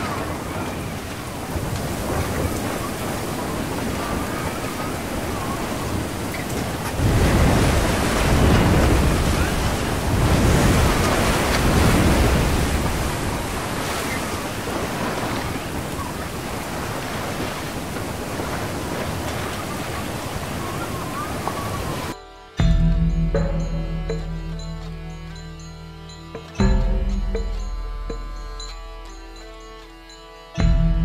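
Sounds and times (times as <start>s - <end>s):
heavy rain: 0.0s - 22.2s
waves crashing over deck: 0.0s - 22.2s
wind: 0.0s - 31.0s.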